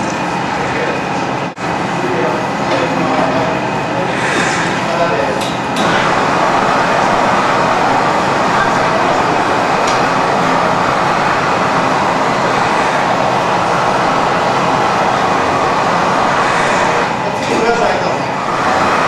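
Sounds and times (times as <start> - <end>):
gas burner roaring: 0.0 - 19.0.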